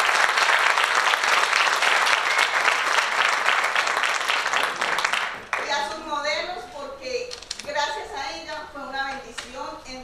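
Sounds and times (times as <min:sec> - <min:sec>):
crowd applauding: 0:00.0 - 0:05.9.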